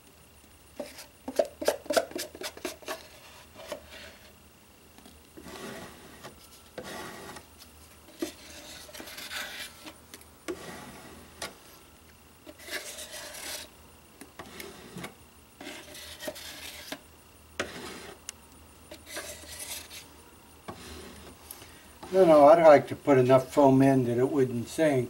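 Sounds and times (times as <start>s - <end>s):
stick scraping foam from cup: 0.8s - 4.3s, 5.4s - 7.5s, 8.1s - 11.3s, 12.5s - 13.7s, 14.4s - 17.0s, 17.6s - 18.2s, 18.9s - 20.1s.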